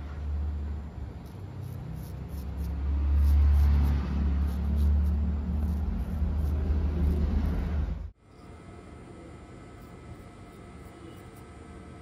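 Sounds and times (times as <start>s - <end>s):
razor scraping stubble: 1.2s - 8.0s, 9.7s - 11.5s.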